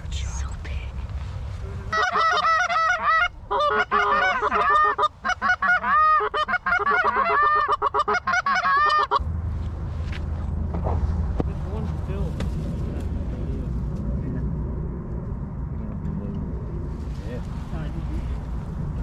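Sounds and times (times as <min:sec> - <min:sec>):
goose honking and clucking: 0:01.9 - 0:09.2.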